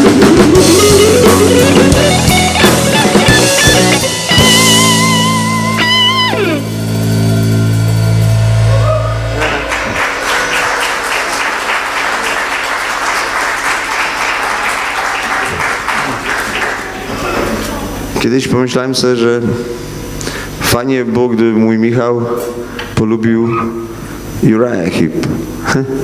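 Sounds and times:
lead guitar with vibrato: 0.0s - 10.0s
live rock band playing: 0.0s - 11.4s
audience applauding: 8.8s - 17.6s.

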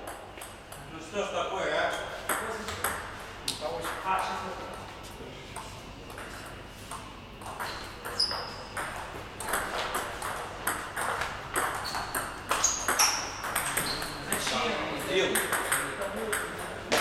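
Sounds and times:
ball bouncing on table: 2.3s - 4.0s, 5.6s - 17.0s.

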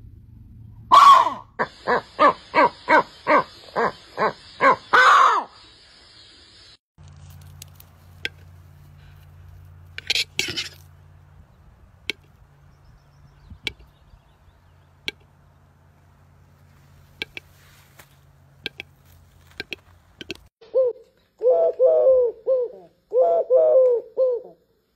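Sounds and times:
low steady hum: 0.0s - 1.6s, 7.0s - 24.9s
bird display song clicks: 12.0s - 15.7s, 17.0s - 17.6s, 18.6s - 20.5s.

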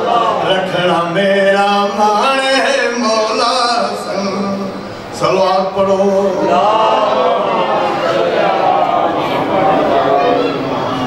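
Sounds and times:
man chanting into a microphone: 0.0s - 7.7s.

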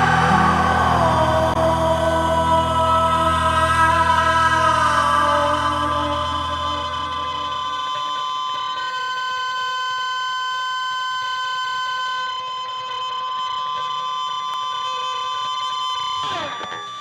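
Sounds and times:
sustained music chord: 0.0s - 8.2s.

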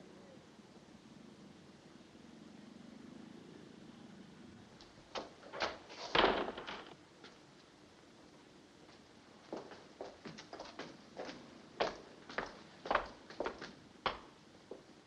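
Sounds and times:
door unlatching and opening: 5.6s - 7.0s.

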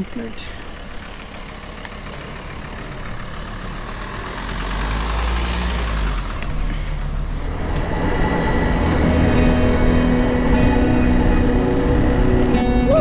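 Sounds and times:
motorcycle engine idling: 0.0s - 4.4s.

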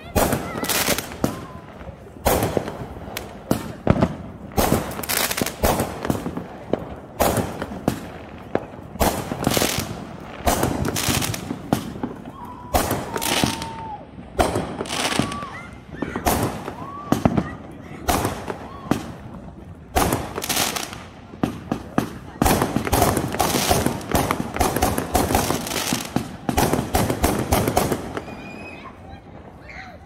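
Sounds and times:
fireworks bangs and crackles: 0.0s - 30.0s
fireworks whistle: 10.5s - 17.5s, 27.6s - 29.0s.

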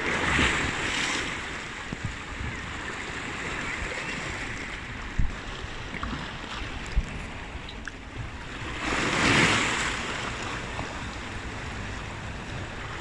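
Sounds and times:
seawater surging into rock gully: 0.0s - 13.0s.

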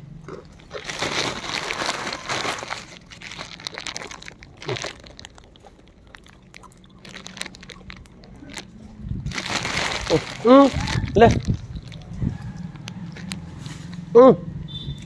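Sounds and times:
plastic bag crinkling: 0.6s - 13.5s.

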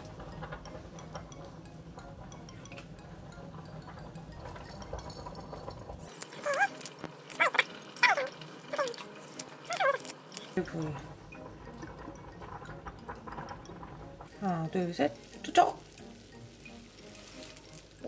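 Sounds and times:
small dog whining: 6.4s - 9.0s, 9.7s - 10.2s.

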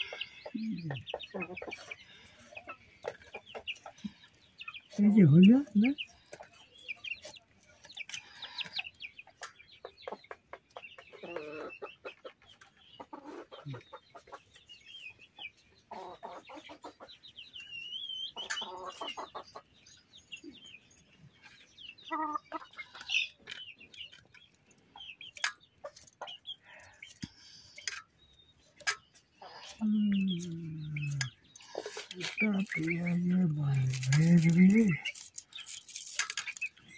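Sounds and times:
chickens clucking: 0.0s - 36.9s
small birds chirping: 0.0s - 36.9s.

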